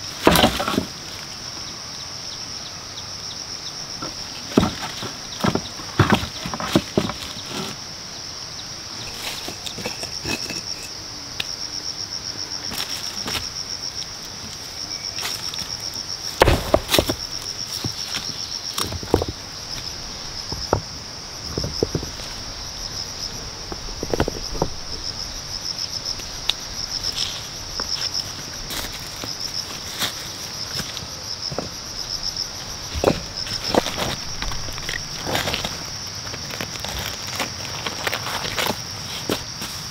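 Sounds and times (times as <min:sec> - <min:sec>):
knocks and rustles of bark and stones: 0:00.0 - 0:02.0, 0:03.3 - 0:39.9
high pulsing insect trill: 0:00.0 - 0:39.9.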